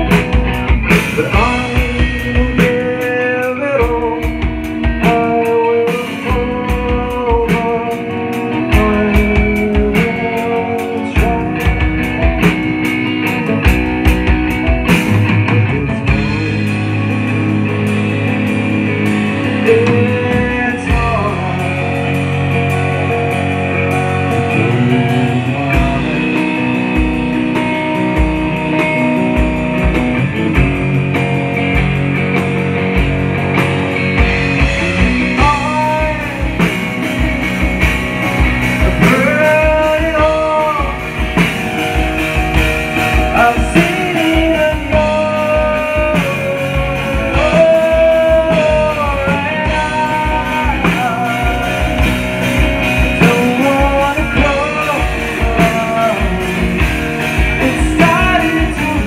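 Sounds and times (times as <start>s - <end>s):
drums: 0.0s - 59.0s
electric guitar: 0.0s - 59.0s
sliding melody line: 32.6s - 59.0s.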